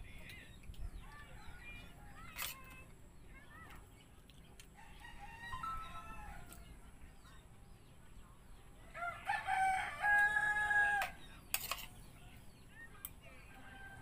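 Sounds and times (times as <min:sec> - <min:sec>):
rooster crowing: 0:04.8 - 0:06.6, 0:08.9 - 0:11.2, 0:13.5 - 0:14.0.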